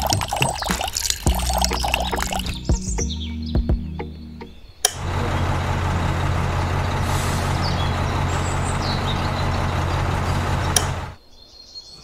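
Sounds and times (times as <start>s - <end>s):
concrete mix rattling: 0.0s - 2.6s.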